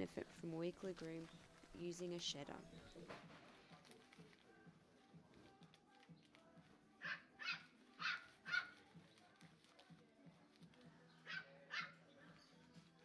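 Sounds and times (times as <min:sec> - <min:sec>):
puppy yapping: 0:07.0 - 0:08.7.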